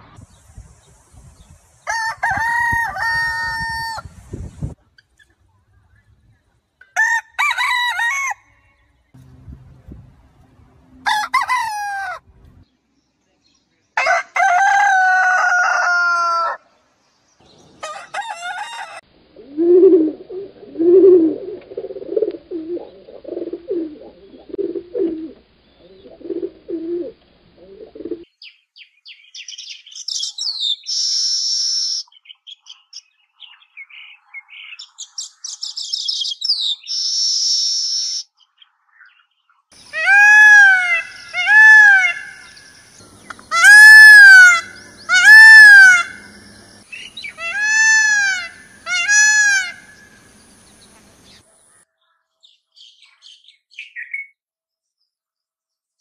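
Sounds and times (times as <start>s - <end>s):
rooster crowing: 1.8s - 4.1s, 7.0s - 9.1s, 11.0s - 12.3s, 14.0s - 16.7s, 17.8s - 19.1s, 39.9s - 42.6s, 43.5s - 50.0s
pigeon cooing: 19.3s - 28.2s.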